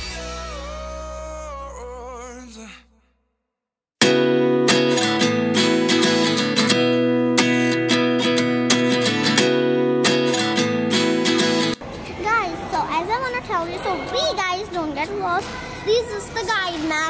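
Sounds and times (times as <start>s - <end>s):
strummed acoustic guitar: 4.0s - 11.8s.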